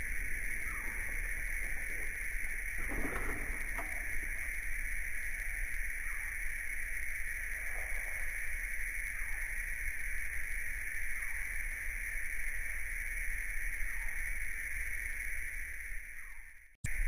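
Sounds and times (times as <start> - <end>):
faint falling calls: 0.0 - 9.6.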